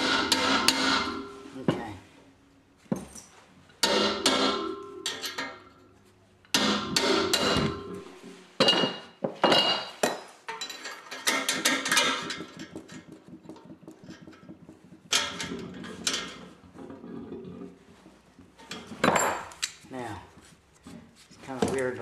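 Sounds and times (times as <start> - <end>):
steel tools striking metal: 0.0 - 1.6.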